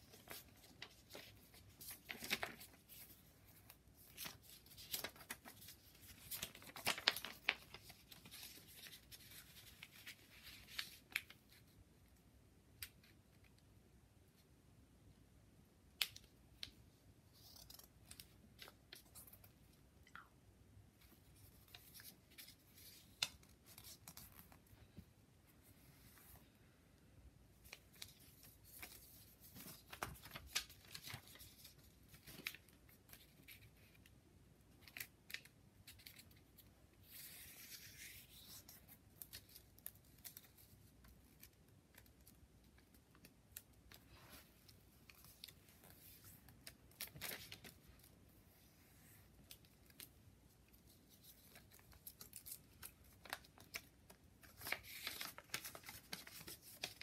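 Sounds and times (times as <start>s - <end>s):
paper crinkling and rustling: 0.0s - 11.7s, 27.6s - 34.1s, 34.8s - 57.0s.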